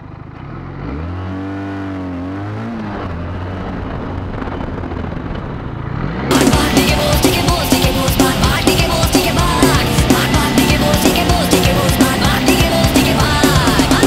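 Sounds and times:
motorcycle engine pulling away: 0.0s - 14.0s
loud rock music: 6.3s - 14.0s.

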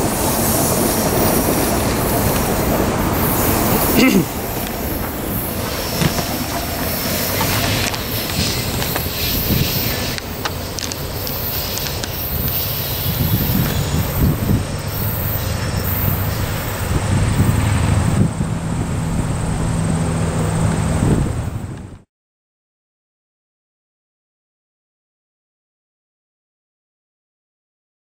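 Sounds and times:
train wheels squealing: 0.0s - 17.6s
diesel locomotive engine rumbling: 0.0s - 22.1s.

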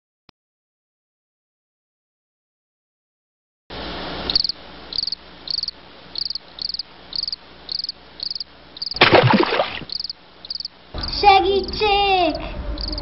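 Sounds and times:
cricket chirping: 4.2s - 11.2s, 12.7s - 13.0s.

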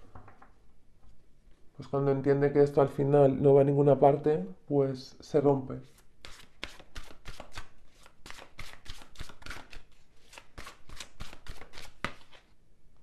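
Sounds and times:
cards being shuffled: 5.9s - 12.5s.

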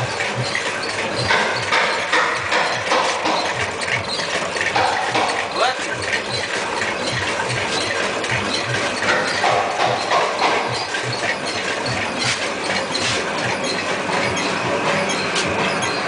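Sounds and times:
steady background noise: 0.0s - 16.0s
heartbeat thumps: 5.0s - 12.4s.

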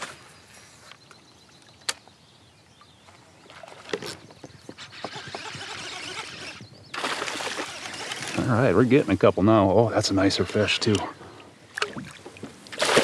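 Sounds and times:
kayak paddle splashing water: 7.0s - 8.5s, 11.7s - 13.0s.

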